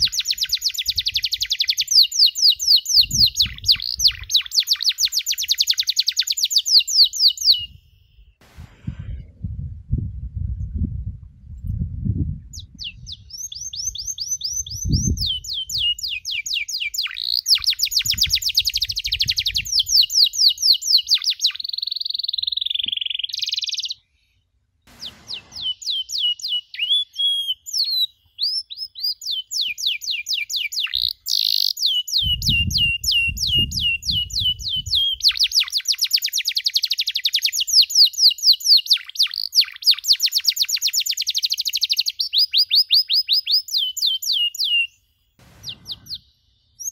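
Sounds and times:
canary singing trills: 0:00.0 - 0:08.3, 0:12.5 - 0:24.0, 0:24.9 - 0:45.0
low thumps: 0:08.4 - 0:12.7, 0:24.9 - 0:26.3, 0:45.4 - 0:46.4.

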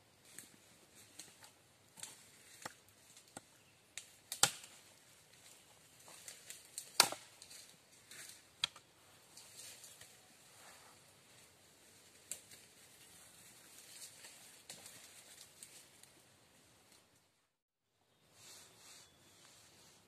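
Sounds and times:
machete chopping wood: 0:04.3 - 0:04.7, 0:06.9 - 0:07.3.

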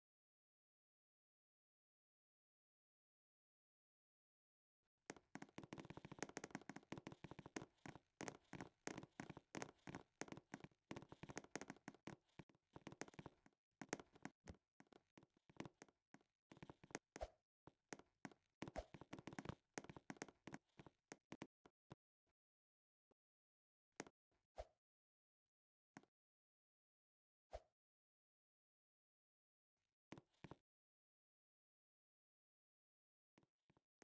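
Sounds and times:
faint rapid tapping and clicking: 0:05.1 - 0:17.3, 0:17.9 - 0:21.5.

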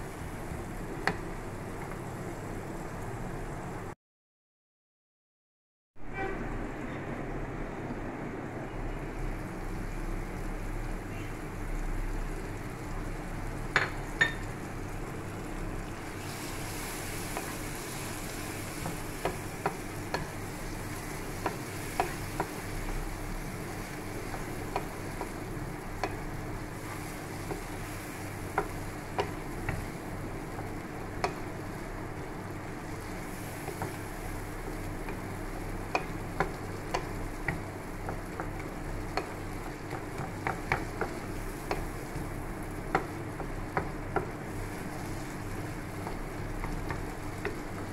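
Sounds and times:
food sizzling in a pan: 0:09.1 - 0:47.9
spatula knocking on pan: 0:18.8 - 0:20.4, 0:24.1 - 0:26.2, 0:28.5 - 0:31.5, 0:35.0 - 0:44.4.

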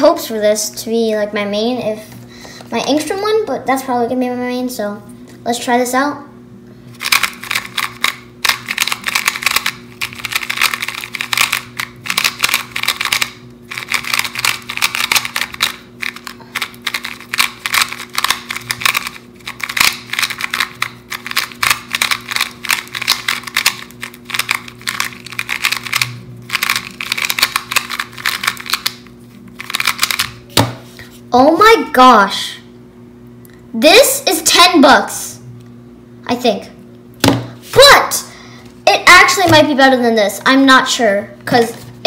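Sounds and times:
faint steady hum: 0:00.0 - 0:42.0
puzzle cube plastic clicks: 0:07.0 - 0:29.0, 0:29.6 - 0:30.4.

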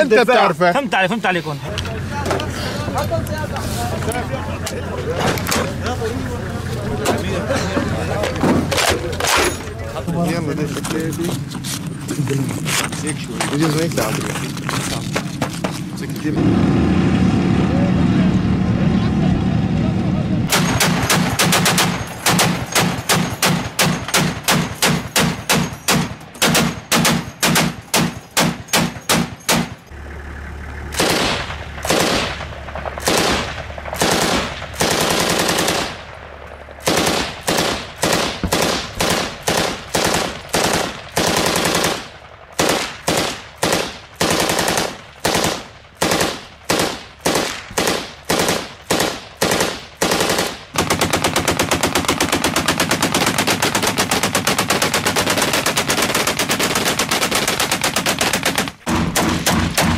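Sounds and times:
machine gun firing: 0:20.5 - 0:29.8, 0:30.9 - 0:59.9.

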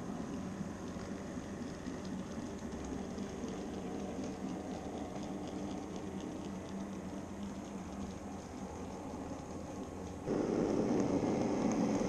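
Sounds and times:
model train low hum: 0:08.2 - 0:12.0.

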